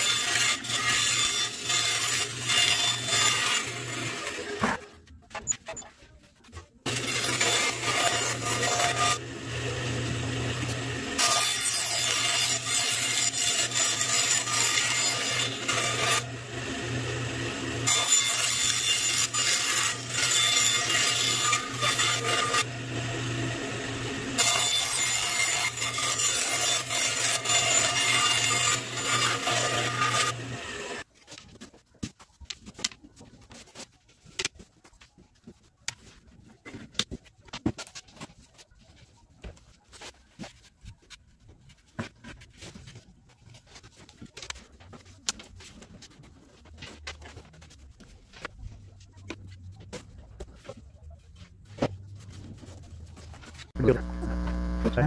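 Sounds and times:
saw cutting wood: 0:00.0 - 0:05.0, 0:06.8 - 0:31.1, 0:51.9 - 0:55.0
band saw motor hum: 0:53.7 - 0:55.0.

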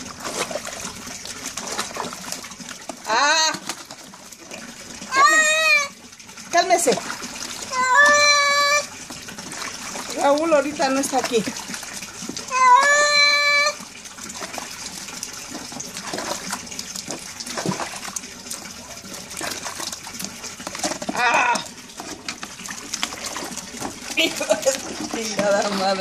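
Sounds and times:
water pouring and trickling: 0:00.0 - 0:26.0
cat meowing: 0:07.7 - 0:08.9, 0:12.5 - 0:13.8.

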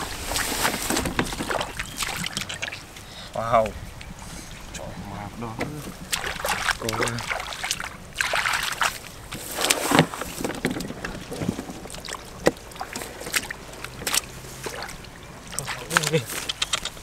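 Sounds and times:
hands splashing in muddy water: 0:00.2 - 0:02.9, 0:06.0 - 0:17.0
sharp ticks: 0:15.9 - 0:17.0.

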